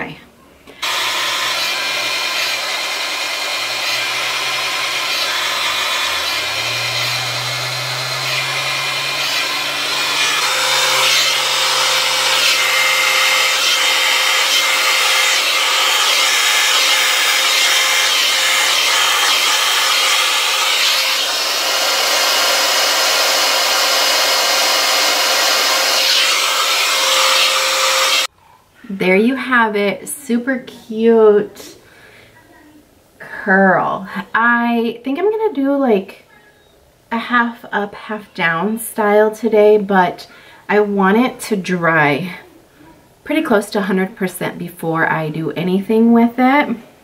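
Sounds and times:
hair dryer running: 0:00.7 - 0:28.3.

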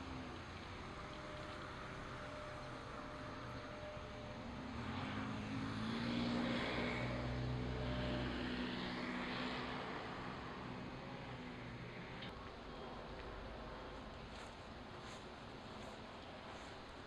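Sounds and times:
passing engine drone: 0:00.0 - 0:14.5.

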